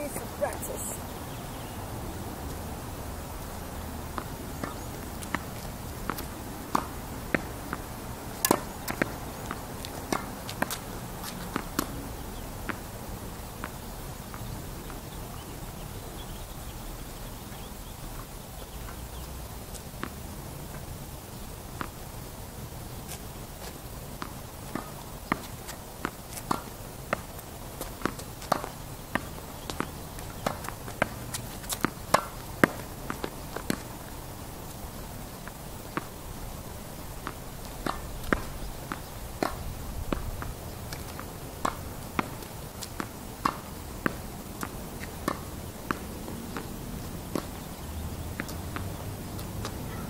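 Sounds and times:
footsteps on court: 3.4 - 7.8, 8.4 - 12.0, 23.0 - 36.2, 37.2 - 50.0
tennis ball struck and bouncing: 4.1 - 5.5, 6.1 - 7.5, 8.4 - 12.0, 24.2 - 27.3, 28.0 - 33.9, 37.2 - 40.3, 40.9 - 46.7, 47.3 - 47.7, 48.4 - 50.0.

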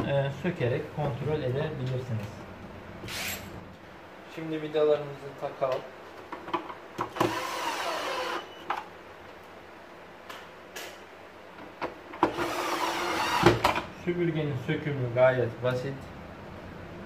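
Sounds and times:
cordless drill whirring: 7.1 - 8.5, 12.3 - 13.6.

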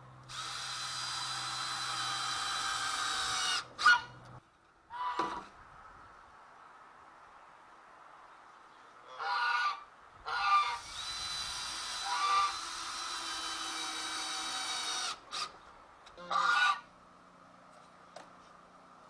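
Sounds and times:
cordless drill running: 0.3 - 3.7, 10.8 - 15.5
geese honking: 9.1 - 10.8, 16.2 - 16.9.

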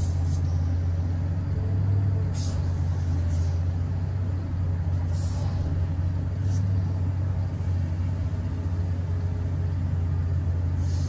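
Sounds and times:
low engine drone: 0.0 - 11.0
brief hisses: 2.3 - 3.6, 5.1 - 5.8, 10.8 - 11.0.

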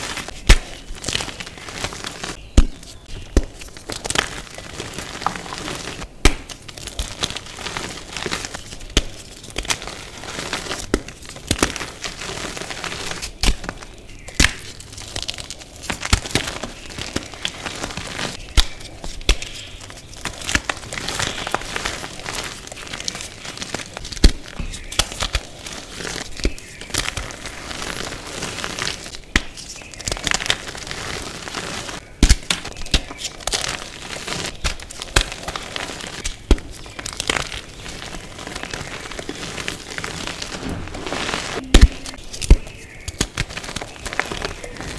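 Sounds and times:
chalk chunks cracking: 0.0 - 44.9
chalk crumbling in hands: 0.0 - 44.9.

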